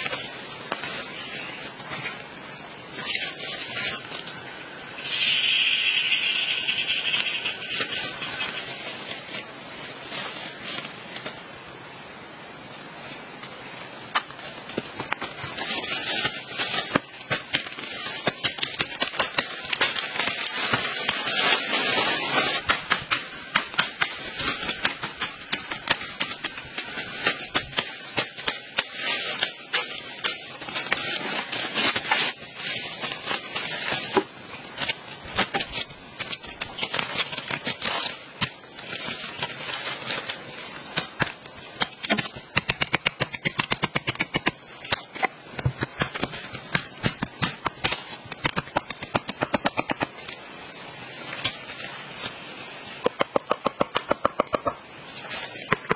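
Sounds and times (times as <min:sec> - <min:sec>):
leaves rustling: 0:00.0 - 0:55.9
machete chopping brush: 0:40.8 - 0:50.4.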